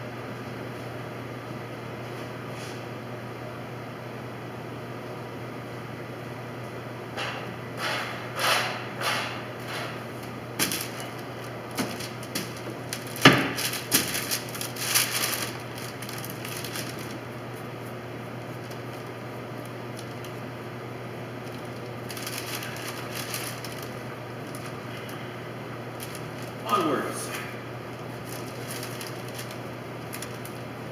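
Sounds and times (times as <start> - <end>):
steady low hum: 0.0 - 30.9
paper rustling: 10.2 - 20.4, 21.4 - 25.2, 25.9 - 26.9, 27.9 - 30.9.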